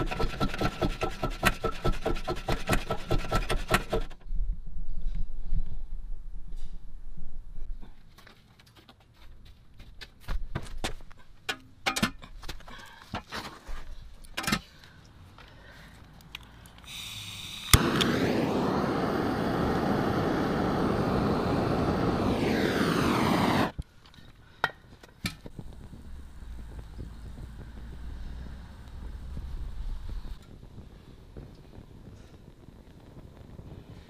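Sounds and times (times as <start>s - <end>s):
gas hissing: 16.8s - 23.8s, 25.3s - 34.0s
blowtorch flame roaring: 16.9s - 23.8s, 25.4s - 34.0s.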